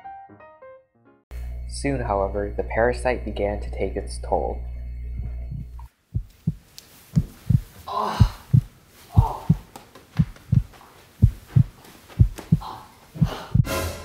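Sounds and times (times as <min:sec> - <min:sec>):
heartbeat thumping: 0:04.8 - 0:13.7.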